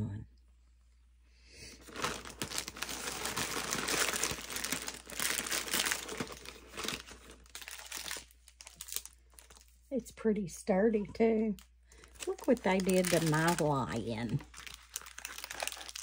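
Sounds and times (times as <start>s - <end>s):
plastic bag crinkling: 1.8s - 9.9s, 11.4s - 16.0s.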